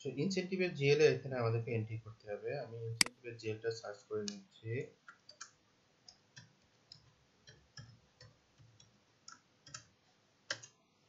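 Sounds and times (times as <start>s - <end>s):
faint keyboard typing: 4.2s - 10.9s.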